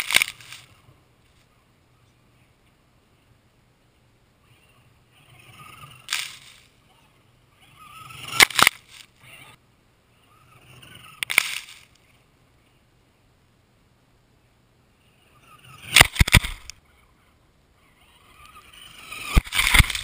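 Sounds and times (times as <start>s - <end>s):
rc truck motor whine: 18.0s - 20.0s.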